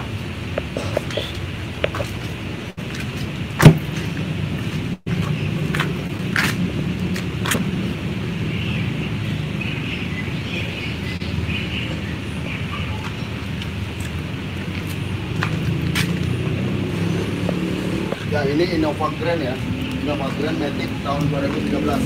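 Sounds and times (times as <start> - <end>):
car rumbling: 0.0 - 22.0
loud sharp knock: 3.6 - 3.8.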